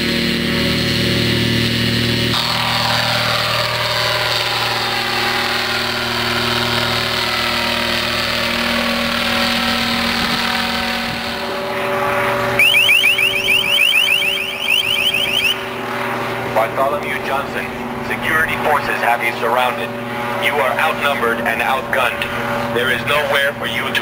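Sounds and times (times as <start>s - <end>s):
helicopter engine and rotor: 0.0s - 24.0s
rapid rising chirp alert tone: 12.6s - 15.8s.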